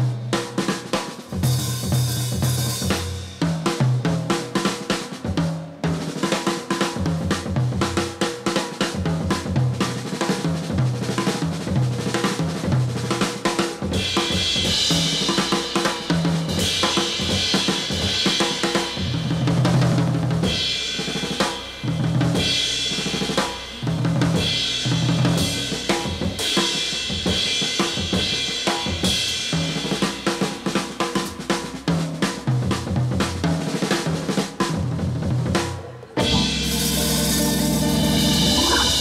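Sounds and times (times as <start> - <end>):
drum kit beat: 0.0 - 39.0
repeating bass line: 36.2 - 39.0.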